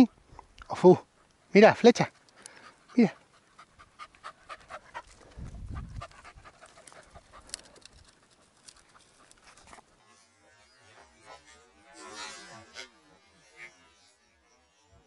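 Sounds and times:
dog panting: 2.1 - 9.9
low rumble on microphone: 5.2 - 6.5.

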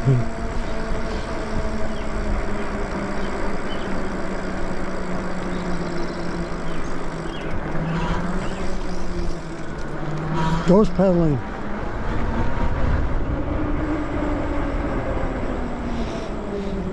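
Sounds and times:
electric bike motor hum: 0.0 - 16.9
wind on microphone: 11.5 - 16.9.

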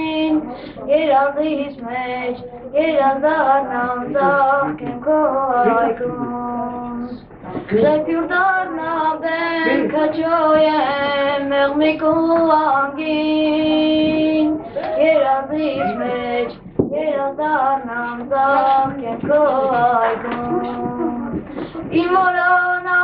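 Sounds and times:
boy singing solo: 7.8 - 23.0.

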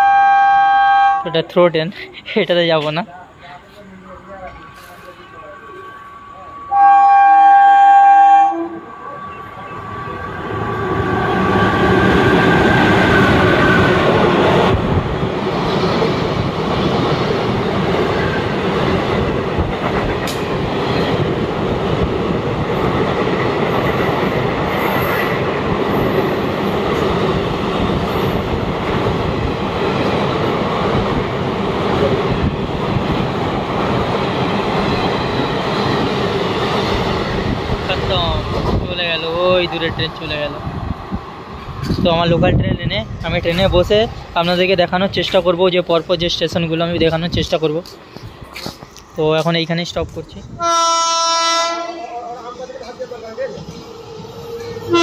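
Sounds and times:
train horn blast: 0.0 - 1.4, 6.7 - 8.9, 50.6 - 52.3
train rumbling and clattering: 1.3 - 6.8, 8.7 - 55.0.

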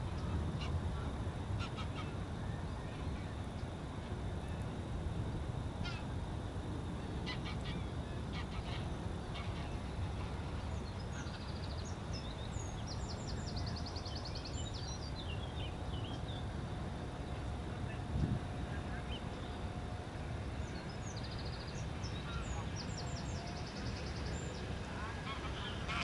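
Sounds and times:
geese honking: 25.0 - 26.0.

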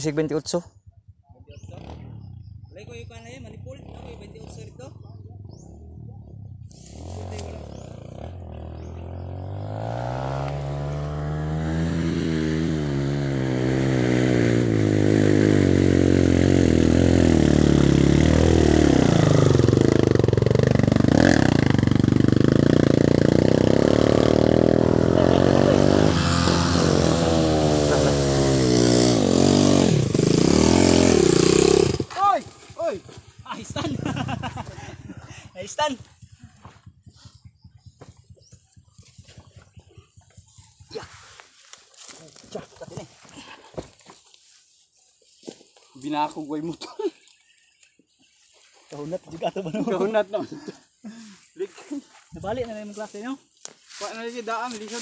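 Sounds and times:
dirt bike engine revving: 1.6 - 37.0.

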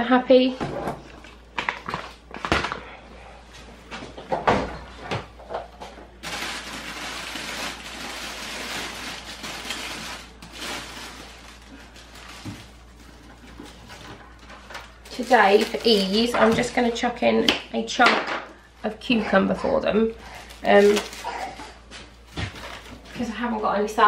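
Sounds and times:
packaging rustling: 6.2 - 16.5, 20.2 - 21.6, 22.2 - 23.2.

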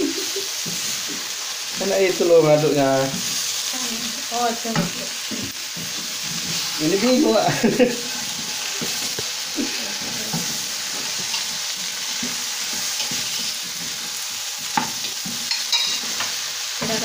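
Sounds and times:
food sizzling in a wok: 0.0 - 17.0
spatula scraping pan: 4.5 - 17.0.

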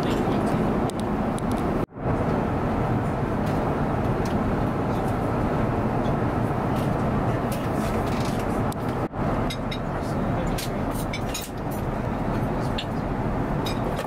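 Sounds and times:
airplane cabin noise: 0.0 - 14.0.

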